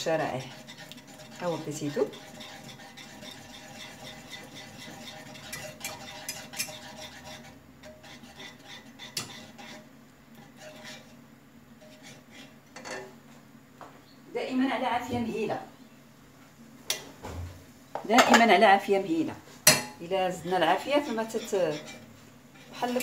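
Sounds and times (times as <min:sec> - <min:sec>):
whisk tapping and scraping a pan: 0:00.0 - 0:13.2, 0:19.6 - 0:23.0.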